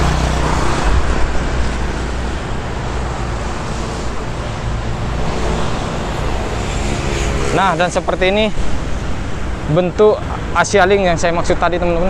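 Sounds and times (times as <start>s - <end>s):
road traffic passing: 0.0s - 12.0s.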